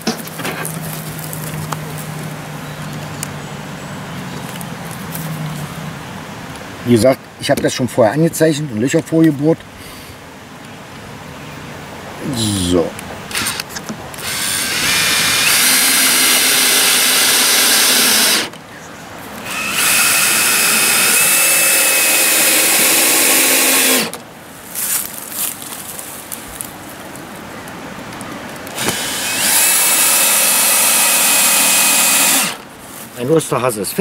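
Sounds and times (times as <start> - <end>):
cordless drill motor whine: 13.3 - 13.6, 14.2 - 18.5, 19.4 - 24.2, 28.8 - 32.6.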